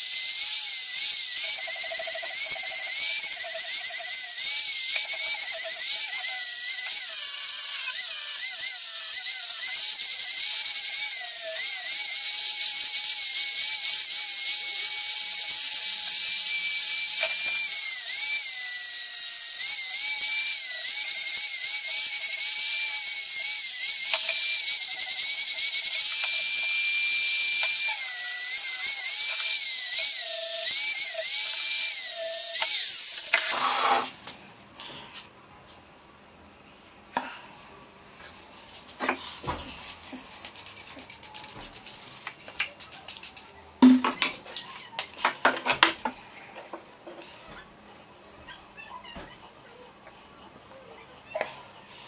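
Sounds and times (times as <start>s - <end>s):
angle grinder sanding wood: 16.6s - 34.1s
brush scratching wood: 37.7s - 43.6s.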